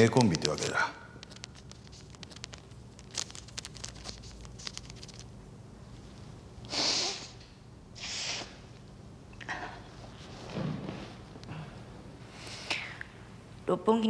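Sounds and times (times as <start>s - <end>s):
paper packet clicks and rustles: 0.0s - 5.3s
woman sniffing sharply: 6.7s - 7.4s, 8.0s - 8.6s.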